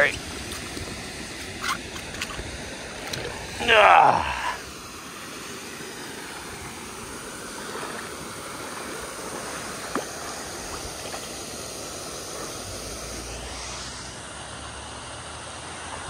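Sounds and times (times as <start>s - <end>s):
water lapping: 0.0s - 13.4s.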